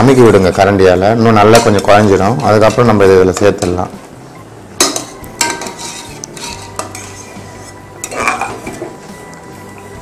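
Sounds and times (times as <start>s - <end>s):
ladle scraping inside a pot: 5.0s - 9.9s.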